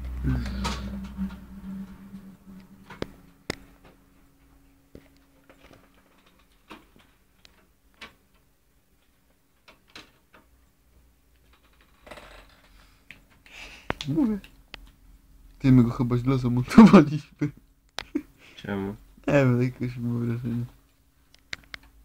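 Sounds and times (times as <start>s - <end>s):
low steady hum: 0.0s - 7.2s.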